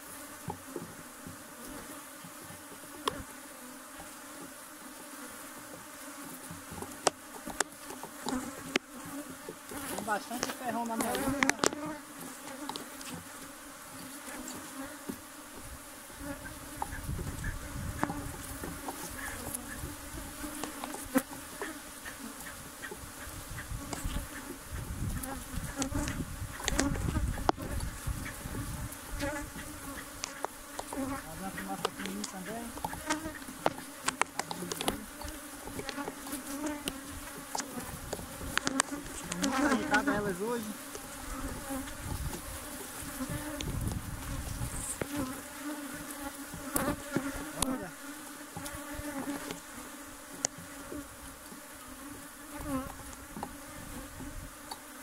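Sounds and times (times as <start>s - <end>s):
honeybees buzzing: 0.0s - 55.0s.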